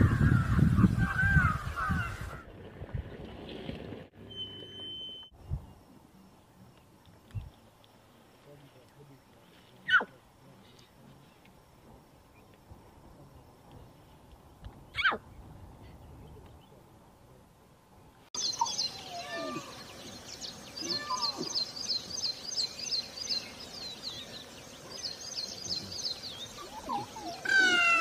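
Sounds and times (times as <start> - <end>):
lion cubs calling: 14.9 - 15.2, 18.5 - 19.9, 20.8 - 21.6, 26.5 - 28.0
bird trilling: 18.4 - 19.9
lion cubs mewing: 18.6 - 19.8, 20.8 - 21.6, 26.6 - 28.0.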